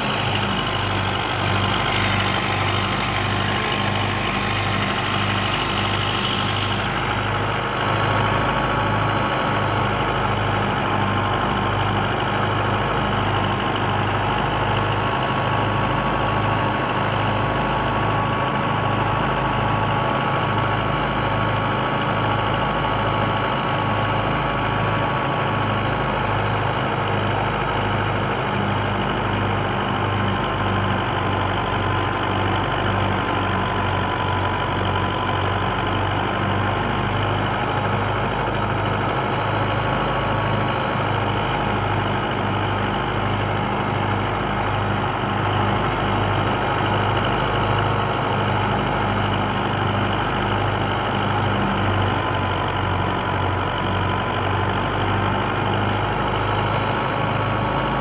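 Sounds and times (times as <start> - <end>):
high machine whine: 0.0 - 7.8
tractor diesel engine running: 0.0 - 58.0.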